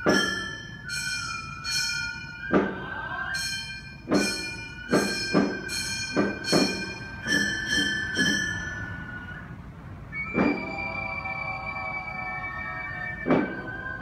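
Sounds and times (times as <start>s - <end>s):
bamboo flute long notes: 0.0s - 14.0s
hand gongs struck: 4.1s - 8.6s.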